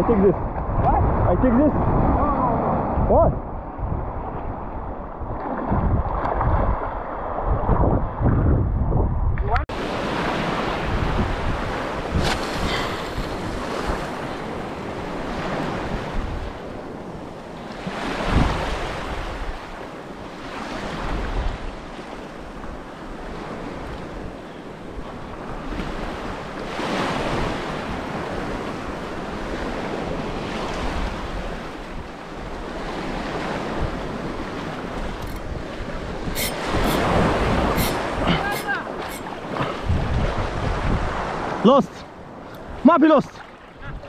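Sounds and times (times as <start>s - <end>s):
wind on microphone: 0.0s - 41.6s, 43.4s - 44.0s
waves washing over rocks: 9.7s - 17.0s.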